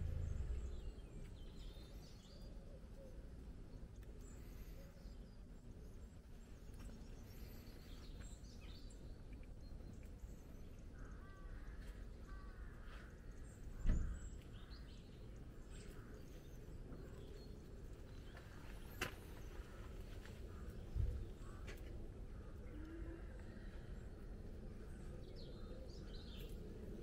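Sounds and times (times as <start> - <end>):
faint songbird chirps: 0.0 - 27.0
low outdoor rumble: 0.0 - 27.0.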